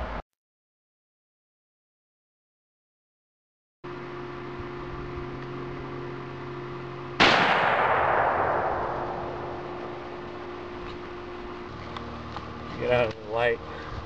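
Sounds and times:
steady low hum: 3.8 - 14.0
shotgun shot: 7.2 - 10.4.

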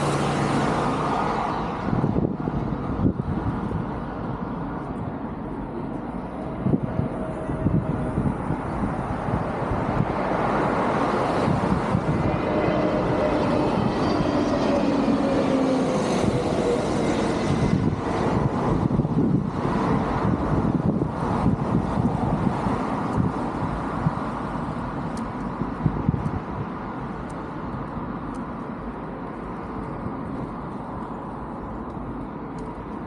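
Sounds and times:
passing engine hum: 0.0 - 33.0
road traffic passing: 0.0 - 33.0.

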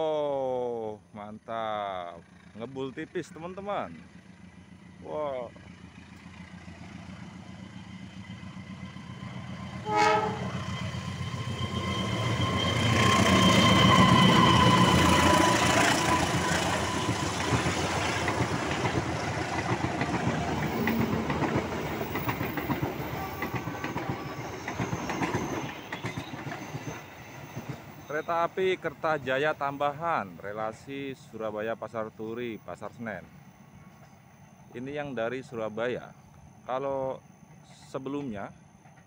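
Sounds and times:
diesel locomotive passing: 0.6 - 39.0
train horn blast: 9.8 - 17.1
train wheels clattering over rail joints: 12.1 - 28.1.

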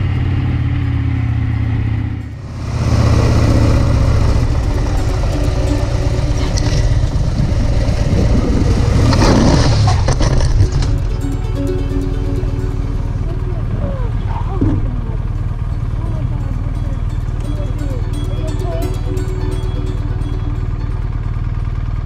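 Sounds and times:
wind and road noise: 0.0 - 17.5
motorcycle engine running: 0.0 - 22.0.

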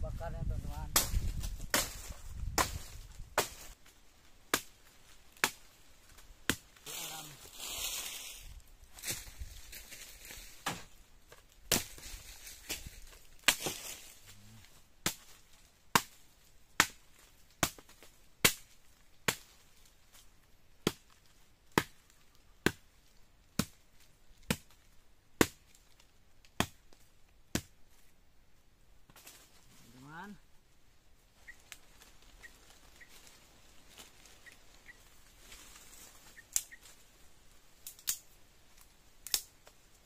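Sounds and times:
machete chopping branch: 0.9 - 3.8, 4.5 - 7.3, 10.2 - 11.0, 11.6 - 14.1, 15.0 - 16.2, 16.8 - 19.6, 20.8 - 21.1, 21.7 - 22.0, 22.6 - 22.8, 23.5 - 23.8, 24.4 - 24.8, 25.4 - 25.8, 26.4 - 27.8.

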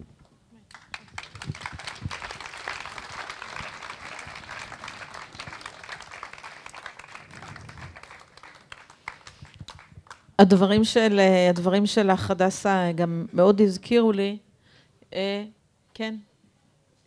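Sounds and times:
audience applauding: 0.7 - 10.2.

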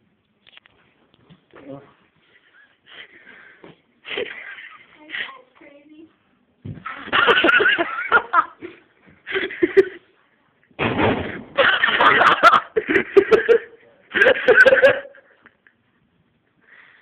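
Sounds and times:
men laughing: 4.0 - 4.9, 7.1 - 10.0, 11.6 - 15.6.

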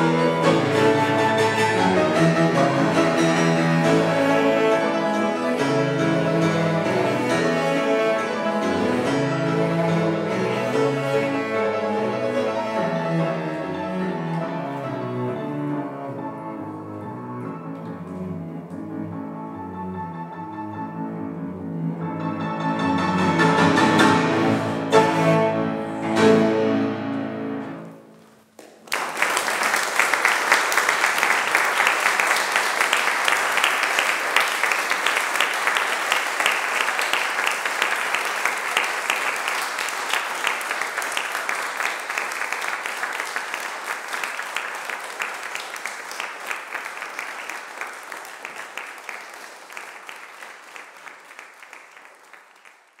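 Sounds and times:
cello and fortepiano chord: 0.0 - 27.9
audience applauding: 28.2 - 53.0.

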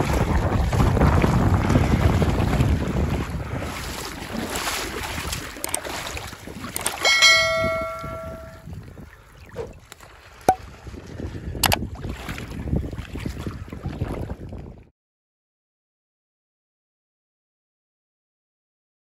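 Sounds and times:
wind buffeting microphone: 0.0 - 14.9
clicks: 6.8 - 8.6
ringing bell chime: 7.0 - 8.6.

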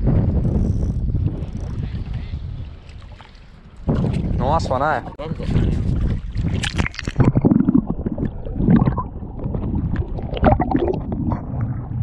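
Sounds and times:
underwater sloshing and gurgling: 0.0 - 12.0
water splashing: 2.8 - 12.0.

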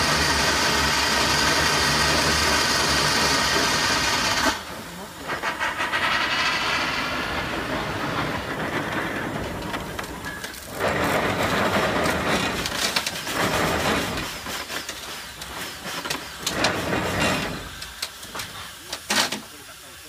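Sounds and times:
steam engine chuffing: 0.0 - 20.0
gears and cables clattering: 8.4 - 19.4.

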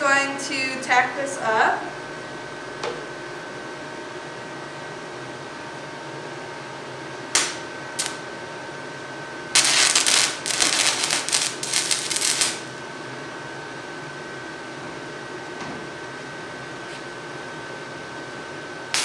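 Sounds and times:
stick welding arc crackling: 7.3 - 8.2, 9.5 - 12.7
welding rod sputtering: 7.4 - 8.2, 9.5 - 12.6.

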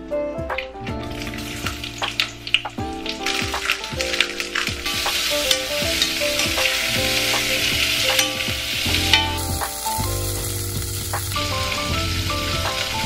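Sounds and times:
onions sizzling in a pot: 4.8 - 13.0.

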